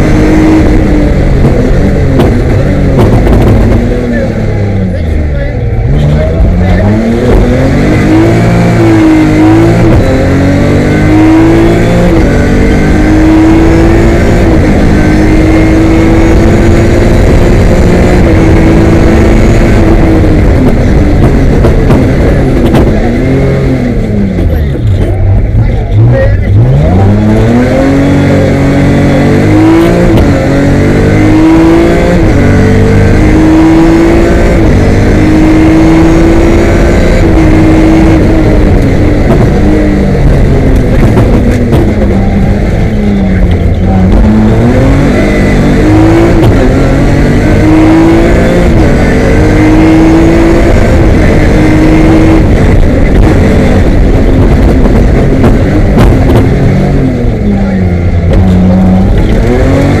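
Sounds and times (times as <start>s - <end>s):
rally car engine revving: 0.0s - 60.0s.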